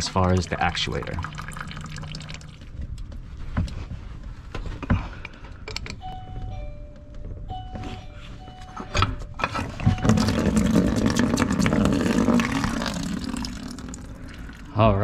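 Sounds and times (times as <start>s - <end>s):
water trickling into plastic bucket: 0.0s - 2.9s, 9.9s - 14.8s.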